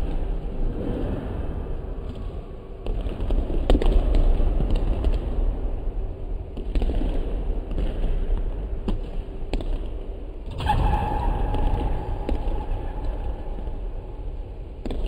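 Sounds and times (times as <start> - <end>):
steady low rumble: 0.0 - 15.0
steady high hum: 10.1 - 15.0.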